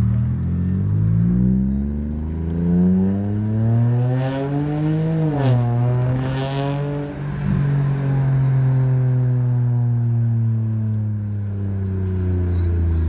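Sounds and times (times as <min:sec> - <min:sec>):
car engine accelerating: 0:00.0 - 0:13.0.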